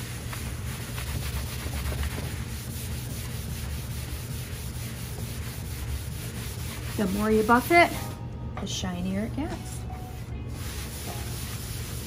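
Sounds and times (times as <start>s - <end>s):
cloth rubbing on wood: 0.0s - 8.1s, 10.5s - 12.0s.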